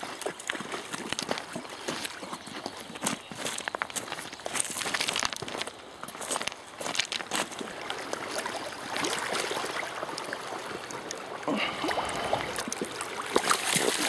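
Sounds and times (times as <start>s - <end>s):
footsteps crunching on shingle: 0.0s - 8.2s
shallow water sloshing and splashing: 7.1s - 14.0s.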